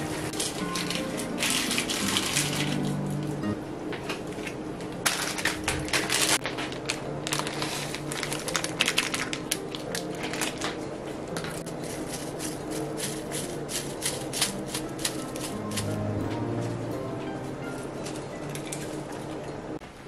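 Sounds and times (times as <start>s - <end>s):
seaweed crumbling by hand: 0.0s - 3.3s, 4.3s - 10.8s
soft background music: 0.0s - 19.8s.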